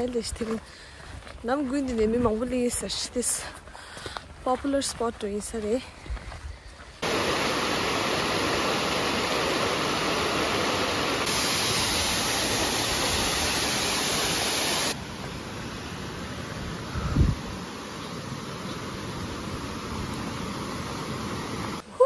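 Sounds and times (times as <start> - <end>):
waterfall rushing: 7.0 - 21.8.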